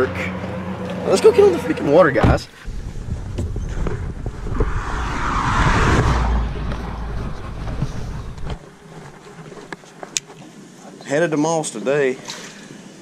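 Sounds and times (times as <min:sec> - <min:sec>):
loud rush of noise: 0:04.0 - 0:08.6
pickup truck rumble: 0:06.2 - 0:09.2.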